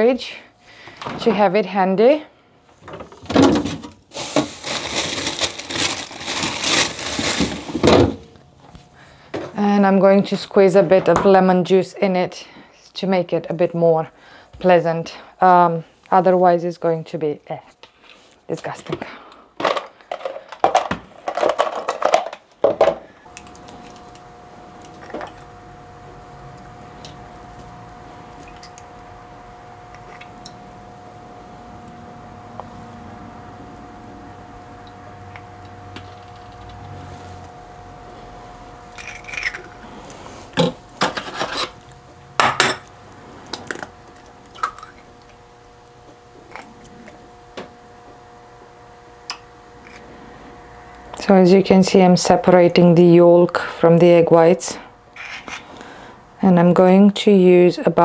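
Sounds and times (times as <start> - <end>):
faint steady hum: 0.0 - 58.0
eggshells cracking on glass: 39.0 - 39.7, 43.6 - 45.1.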